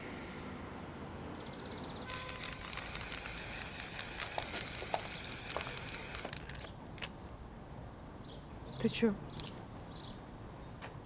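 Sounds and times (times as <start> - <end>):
spray-paint can hissing: 2.1 - 6.5.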